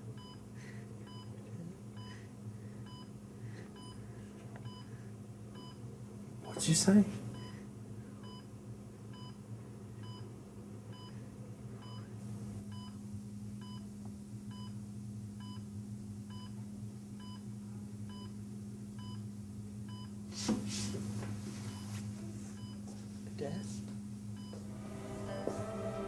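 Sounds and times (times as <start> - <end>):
patient monitor beeps: 0.2 - 0.4, 1.1 - 1.4, 2.0 - 2.2, 2.8 - 3.1, 3.8 - 4.0, 4.6 - 4.9, 5.6 - 5.8, 7.4 - 7.6, 8.2 - 8.5, 9.1 - 9.4, 10.0 - 10.3, 10.9 - 11.2, 11.8 - 12.1, 12.7 - 13.0, 18.1 - 18.3, 19.0 - 19.2, 22.6 - 22.8, 24.4 - 25.7
steady low hum: 24.0 - 26.0
short loud noise: 24.7 - 26.0.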